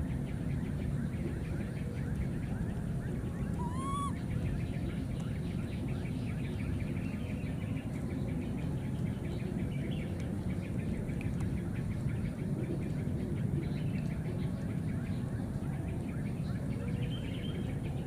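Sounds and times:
low background noise: 0:00.0 - 0:18.0
faint rapid chirps: 0:02.2 - 0:04.2
baby monkey coo: 0:03.3 - 0:04.2.

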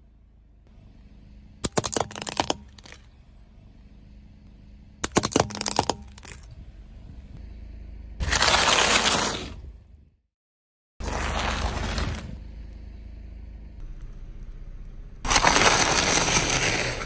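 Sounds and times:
low steady hum: 0:00.0 - 0:10.2, 0:11.0 - 0:17.0
plastic objects cracking under tyre: 0:01.6 - 0:03.1, 0:05.0 - 0:06.5, 0:15.3 - 0:17.0.

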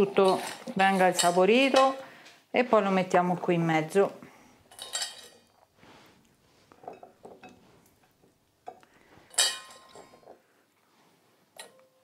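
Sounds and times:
bowl and dish clinking: 0:04.7 - 0:05.6, 0:06.8 - 0:07.6, 0:08.6 - 0:10.4.

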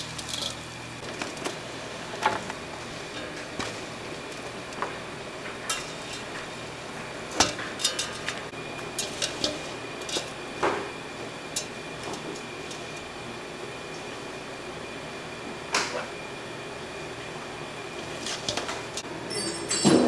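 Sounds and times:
dishes and utensils clinking: 0:07.4 - 0:08.4, 0:18.2 - 0:20.0.

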